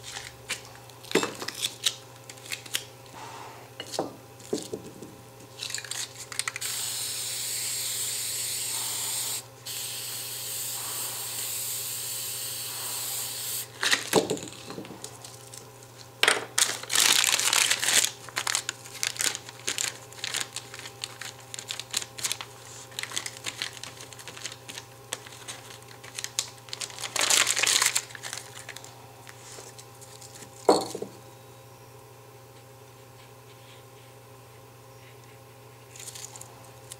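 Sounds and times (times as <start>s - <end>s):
aerosol spray hissing: 6.6s - 13.7s
paper crinkling and tearing: 13.8s - 30.5s.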